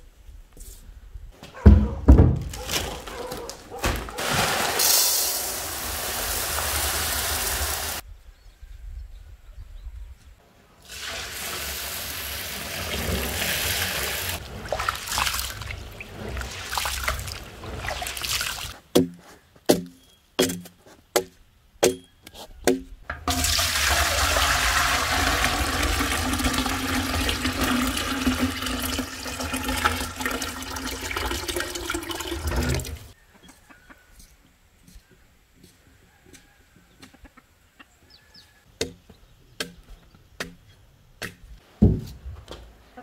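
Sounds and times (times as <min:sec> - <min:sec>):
water poured onto grain: 0:04.2 - 0:08.0, 0:10.8 - 0:18.8
water stream into metal bucket: 0:04.2 - 0:08.0, 0:10.8 - 0:18.8, 0:23.2 - 0:33.2.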